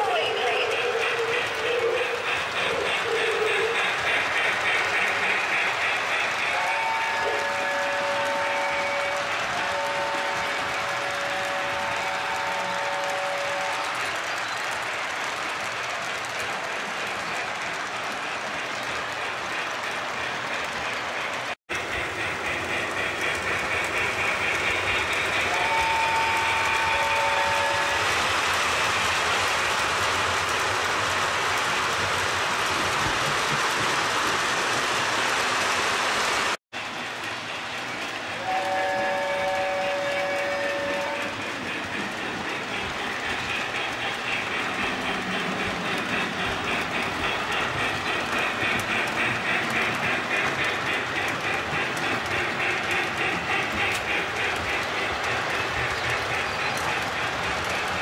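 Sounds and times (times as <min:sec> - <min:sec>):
model train wheels rattling on rails: 0:00.0 - 0:58.0
chord-like steam whistle: 0:06.5 - 0:13.8, 0:25.4 - 0:28.0, 0:38.4 - 0:41.4.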